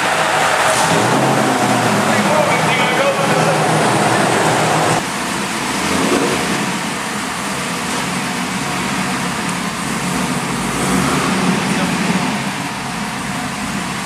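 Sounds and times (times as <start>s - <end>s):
car engine running on dyno: 0.0s - 14.0s.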